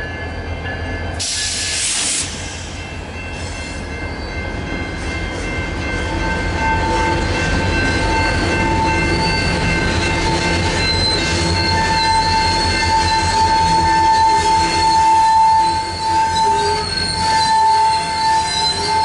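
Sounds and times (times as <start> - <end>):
train wheels squealing: 0.0 - 19.0.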